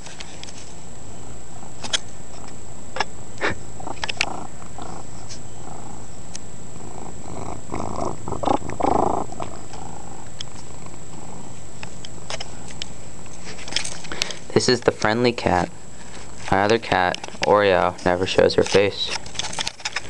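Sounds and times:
cat purring: 3.4s - 12.7s
rustling against microphone: 7.0s - 14.5s.

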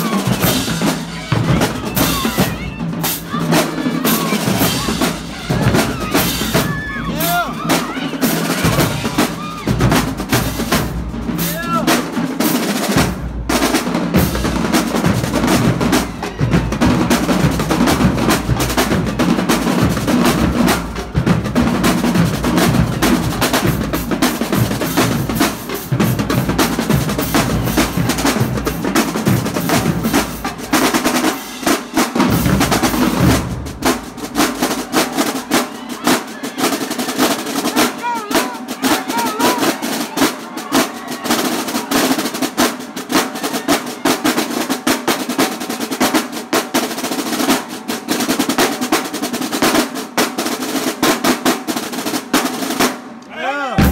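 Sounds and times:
bass drums: 0.0s - 12.2s, 13.0s - 35.5s
marching snare drum rolls: 0.0s - 53.2s.

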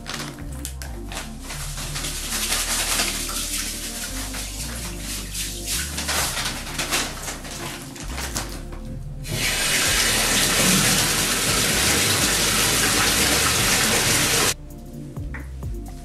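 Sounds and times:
tap water pouring into bathtub: 9.3s - 14.6s.

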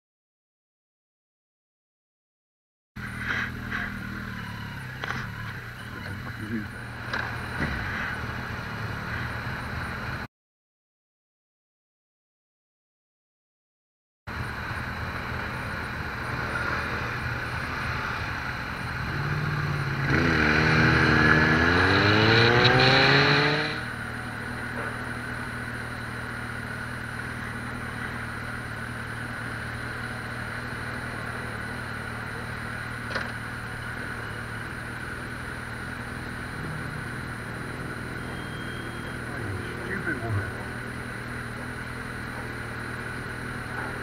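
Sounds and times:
engine accelerating: 3.0s - 10.3s, 14.3s - 44.0s.

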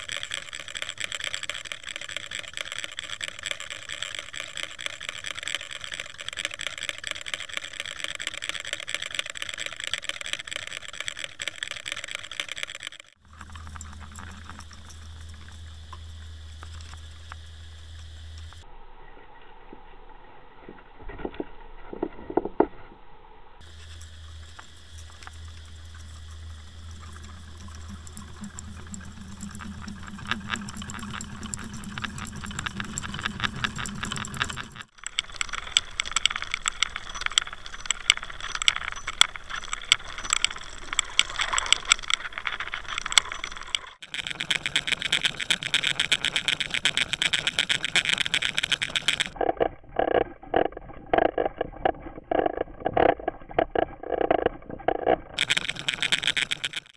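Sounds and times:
fishing lure clicking and rattling: 0.0s - 15.7s, 26.8s - 49.4s, 55.4s - 56.9s
low steady hum: 13.2s - 56.8s
water rushing underwater: 23.6s - 56.8s.

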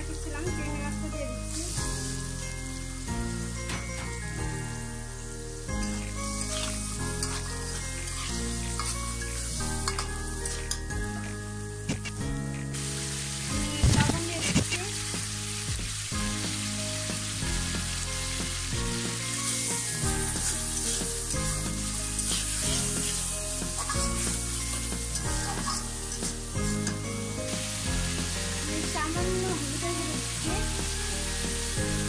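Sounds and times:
shrimp sizzling in hot oil: 0.0s - 32.0s
metal spatula scraping wok: 5.7s - 11.0s, 19.4s - 29.6s.

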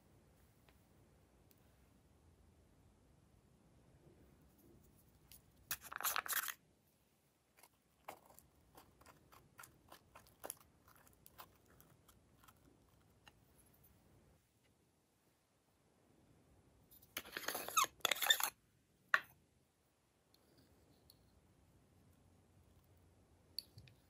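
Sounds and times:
crackly plastic rasp: 7.6s - 13.4s.

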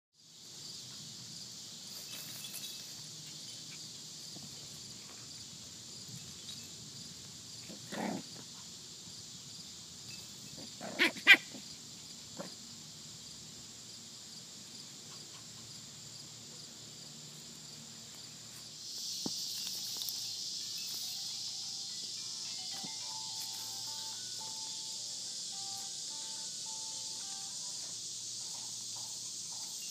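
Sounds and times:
cicadas droning: 0.2s - 29.9s
puppy barking: 10.9s - 11.6s
puppy yips: 11.0s - 11.6s.

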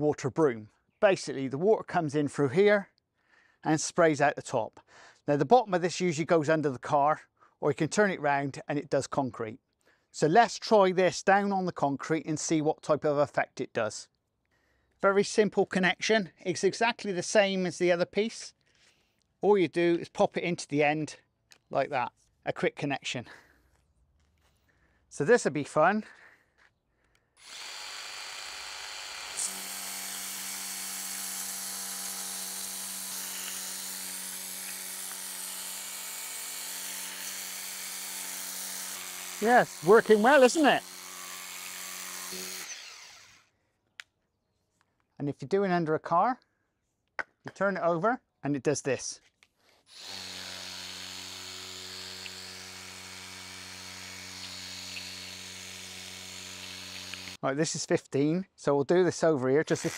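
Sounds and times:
pressure washer motor hum: 27.5s - 43.4s, 50.0s - 57.4s.

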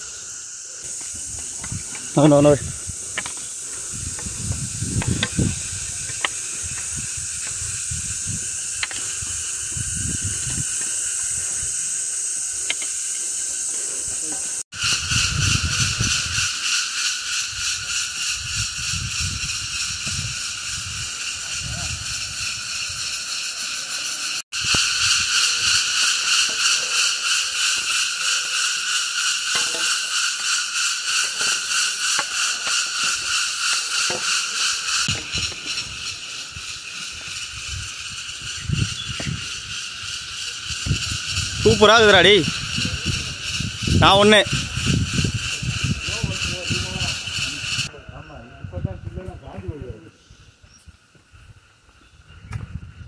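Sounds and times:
cicadas buzzing: 0.0s - 53.0s.

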